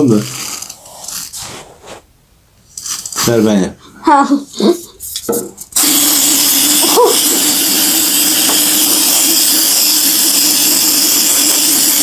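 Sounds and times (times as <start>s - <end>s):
aerosol can spraying: 5.8s - 12.0s.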